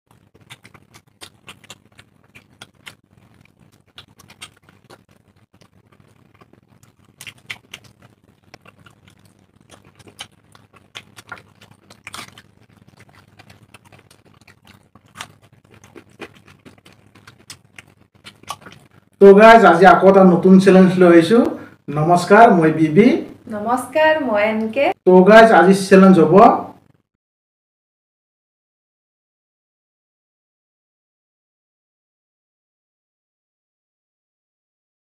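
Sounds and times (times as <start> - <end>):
people chewing food: 0.1 - 22.2.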